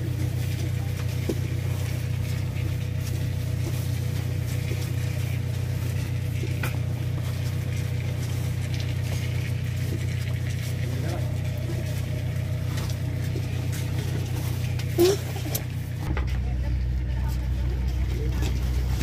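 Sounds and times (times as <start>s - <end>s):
motor engine humming: 0.0s - 19.0s.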